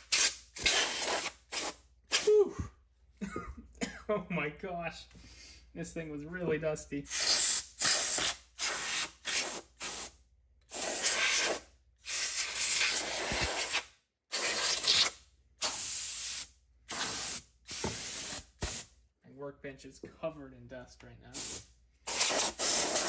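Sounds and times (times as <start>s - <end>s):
compressed air blasts: 0.0s - 2.4s, 7.1s - 10.1s, 10.7s - 18.9s, 21.4s - 23.0s.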